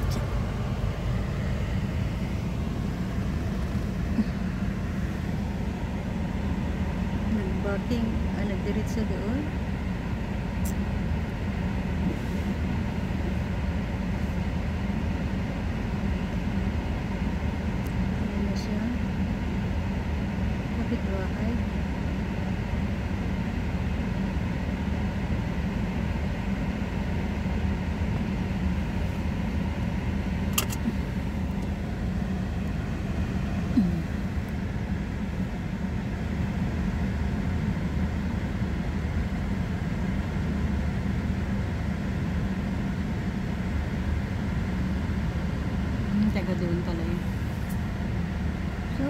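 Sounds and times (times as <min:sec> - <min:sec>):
car idling hum: 0:00.0 - 0:49.0
heater fan blowing: 0:00.0 - 0:49.0
sharp click: 0:30.5 - 0:30.9.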